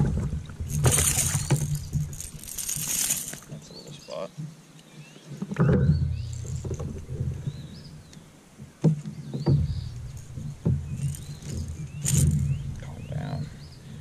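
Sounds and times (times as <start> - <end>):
water swishing from paddling: 0.0 - 3.6
birds chirping: 0.9 - 8.4, 9.0 - 14.0.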